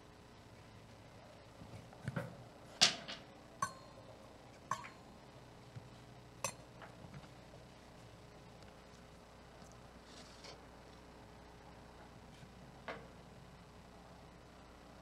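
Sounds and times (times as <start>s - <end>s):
metal vessels clinking on altar: 3.6s - 4.0s, 4.7s - 5.0s.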